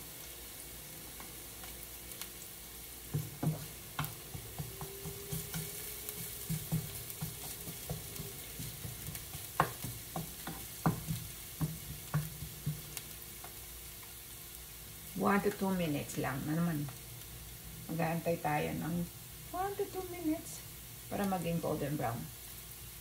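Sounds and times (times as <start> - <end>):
garlic sizzling in oil: 0.0 - 23.0
utensil knocking against pan: 3.1 - 13.0.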